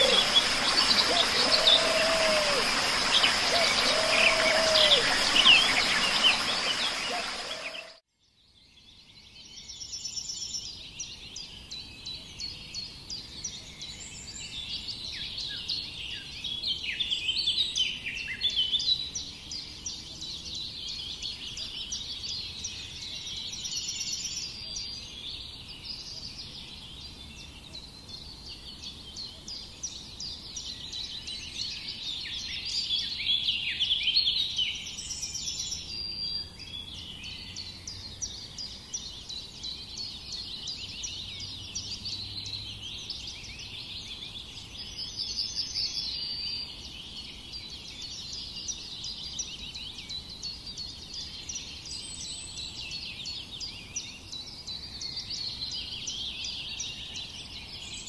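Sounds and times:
songbirds chirping and singing: 0.0s - 8.0s.

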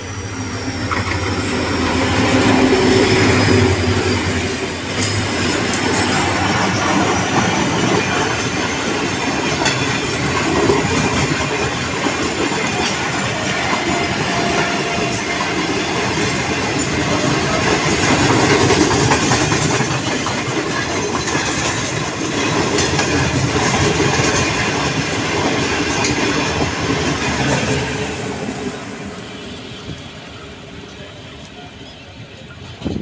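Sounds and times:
train wheels clattering: 0.0s - 28.7s
diesel locomotive passing: 0.0s - 33.0s
train coaches rumbling past: 0.0s - 33.0s.

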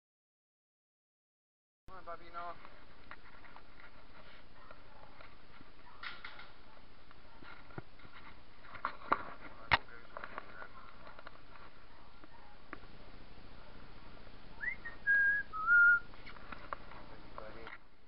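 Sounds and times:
steady low hiss: 1.9s - 18.0s.

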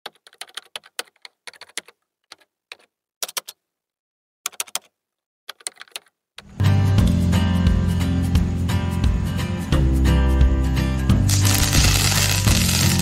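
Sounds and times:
keyboard typing clicks: 0.1s - 3.6s, 4.5s - 6.2s.

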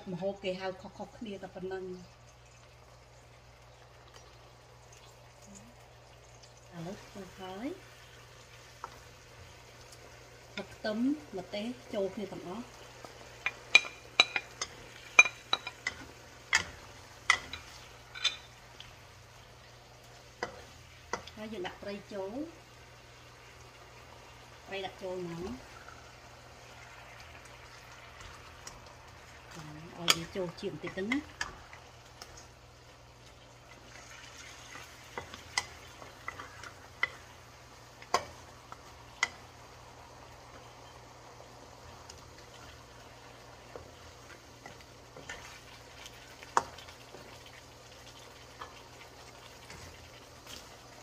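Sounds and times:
faint sizzle: 0.0s - 51.0s
spatula knocking pan: 13.4s - 18.4s, 38.0s - 38.4s
wooden spatula stirring in wok: 41.8s - 51.0s.

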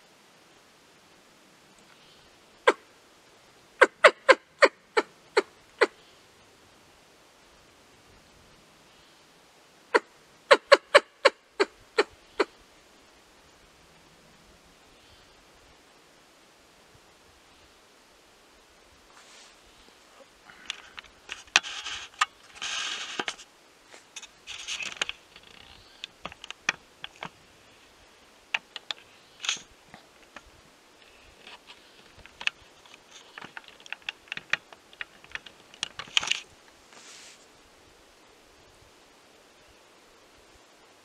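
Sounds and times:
short scraping rustles: 19.1s - 19.9s, 20.5s - 26.1s, 36.0s - 37.5s.

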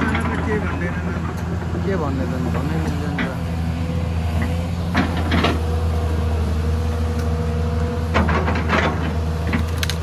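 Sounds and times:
excavator engine hum: 0.0s - 10.0s.

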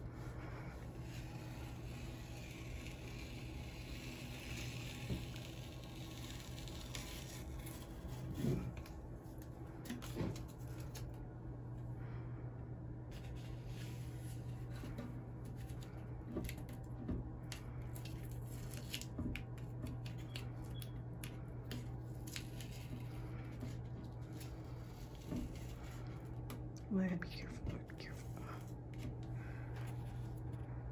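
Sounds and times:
low steady hum: 0.0s - 30.9s
tape peeling off paper: 1.0s - 11.2s, 17.5s - 26.6s.

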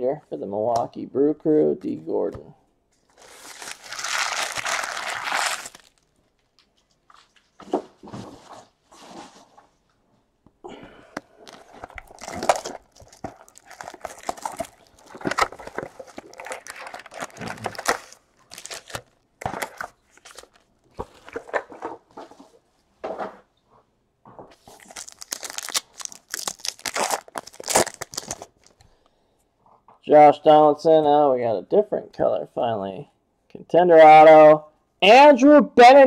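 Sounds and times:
wrapper tearing: 3.1s - 6.7s, 11.4s - 21.5s, 24.6s - 28.8s
foil wrappers crinkling: 3.1s - 7.4s, 11.4s - 21.5s, 24.6s - 28.9s.

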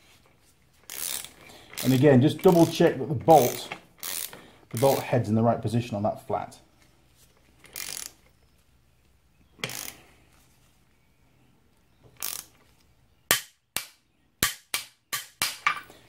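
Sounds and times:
torque wrench ratcheting: 0.8s - 5.1s, 7.6s - 8.3s, 9.6s - 10.0s, 12.2s - 12.6s
torque wrench clicks: 0.9s - 5.0s, 7.6s - 8.2s, 9.6s - 10.0s, 12.2s - 12.6s.

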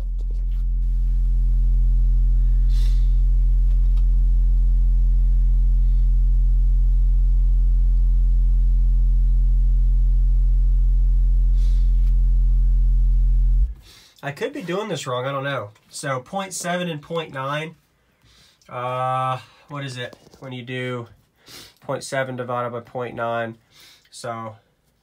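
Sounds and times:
subwoofer low sine tone: 0.0s - 13.9s.

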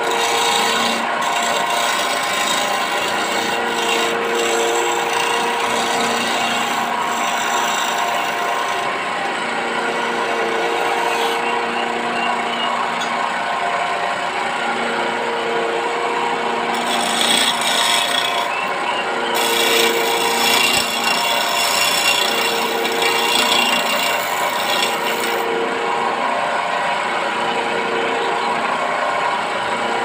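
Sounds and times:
sandpaper rubbing spinning wood: 0.0s - 9.0s, 16.4s - 26.8s
wood lathe motor hum: 0.0s - 30.0s.

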